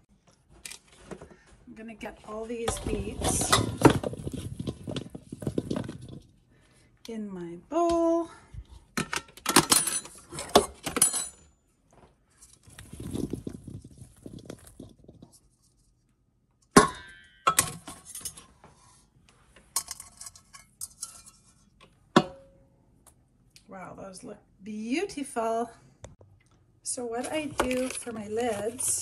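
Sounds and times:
scraping in metal bowl: 0:02.3 - 0:06.3
beets clattering into metal bowl: 0:02.5 - 0:06.4, 0:12.4 - 0:15.5, 0:27.1 - 0:29.0.

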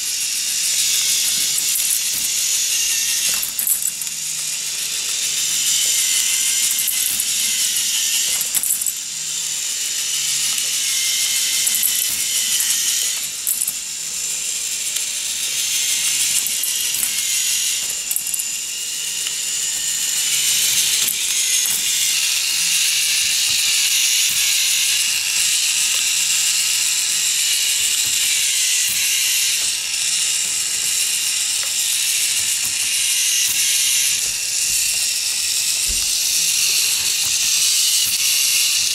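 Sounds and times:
plastic parts clicking and rattling: 0:19.2 - 0:38.9.

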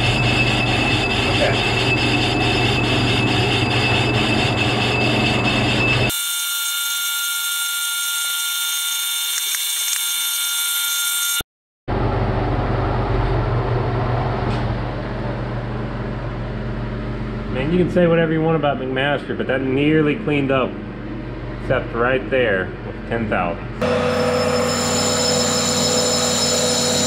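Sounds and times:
metal lathe running: 0:00.0 - 0:06.6, 0:23.8 - 0:27.0
thin high whines: 0:00.0 - 0:11.4, 0:23.8 - 0:27.0.

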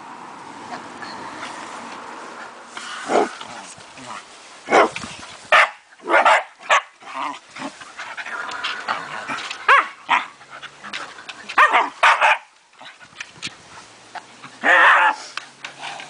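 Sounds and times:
puppies barking and yipping: 0:04.7 - 0:15.3.

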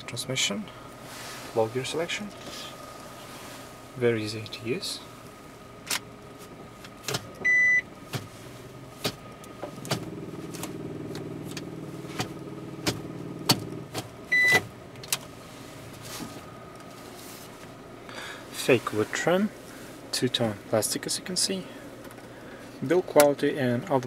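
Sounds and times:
gear selector clicks: 0:05.8 - 0:06.1.

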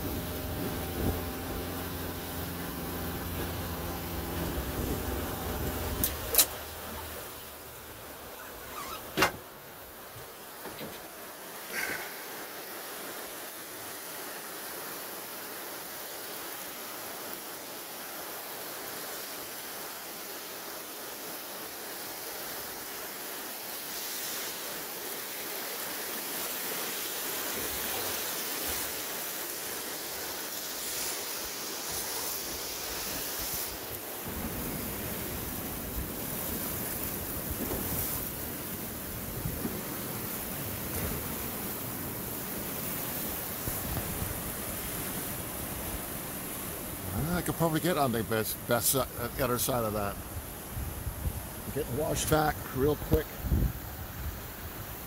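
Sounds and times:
wind rumbling on microphone: 0:00.0 - 0:09.4, 0:32.5 - 0:47.2, 0:50.2 - 0:55.0
rapids rushing: 0:00.0 - 0:55.0.

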